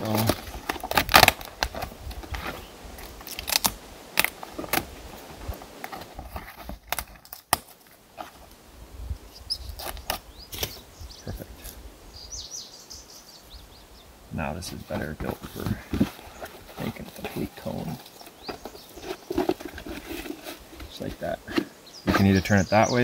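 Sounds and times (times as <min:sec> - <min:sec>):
bark crackling and rustling: 0:00.0 - 0:08.6.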